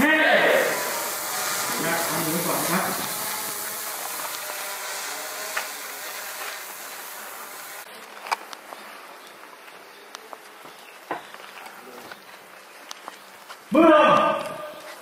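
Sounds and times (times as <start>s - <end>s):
steady high hiss: 0.0s - 10.4s.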